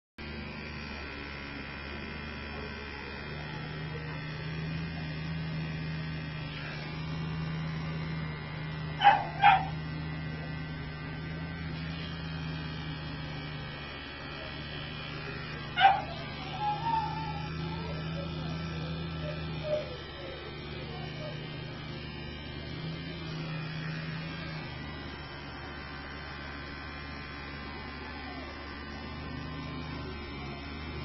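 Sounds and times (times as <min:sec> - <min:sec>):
electric clipper humming: 0:00.2 - 0:31.0
dog barking: 0:09.0 - 0:09.8, 0:15.7 - 0:19.9.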